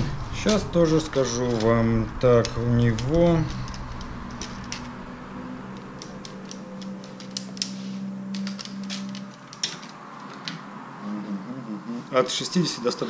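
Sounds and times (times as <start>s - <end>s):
steady low hum: 0.0s - 9.6s.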